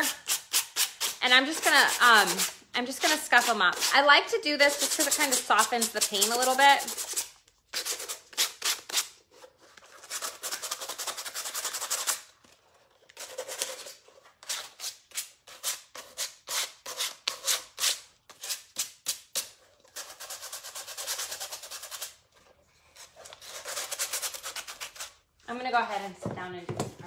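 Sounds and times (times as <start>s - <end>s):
sandpaper rubbing fabric: 0.0s - 4.1s, 4.7s - 9.1s.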